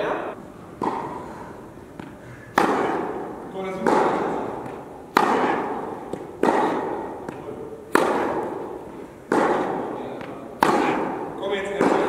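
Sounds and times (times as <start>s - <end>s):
tennis ball hits echoing: 0.0s - 1.3s, 1.9s - 12.0s.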